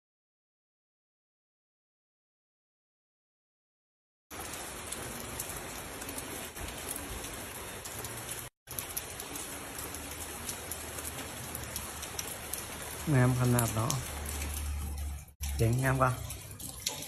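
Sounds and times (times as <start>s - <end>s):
steady rain falling: 4.3s - 17.0s
ticks of raindrops: 4.3s - 17.0s.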